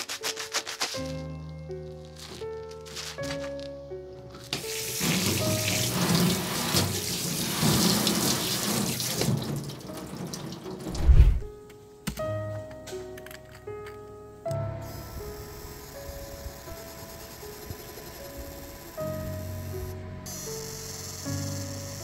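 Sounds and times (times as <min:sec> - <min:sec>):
loud low thud: 0:10.9 - 0:11.5.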